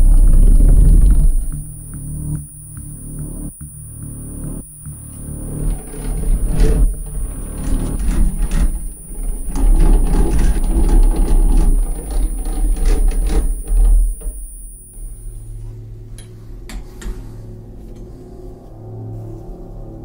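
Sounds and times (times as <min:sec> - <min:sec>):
wooden gears clicking and rattling: 0:00.0 - 0:01.7, 0:05.4 - 0:14.8
deep low rumble: 0:00.0 - 0:16.5.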